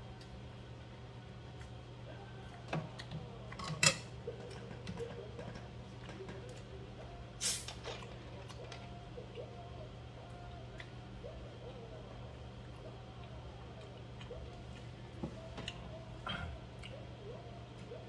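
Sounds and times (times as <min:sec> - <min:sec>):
gas hissing from opened bottle: 0:07.4 - 0:07.7.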